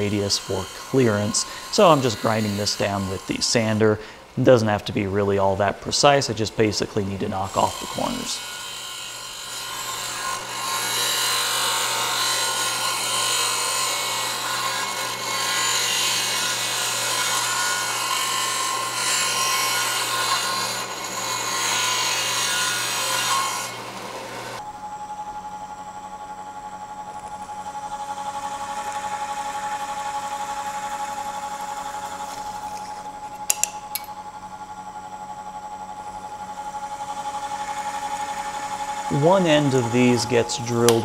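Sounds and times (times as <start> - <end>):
disc sander grinding aluminum: 0.0 - 24.7, 26.6 - 41.0
drill press motor whine: 23.8 - 41.0.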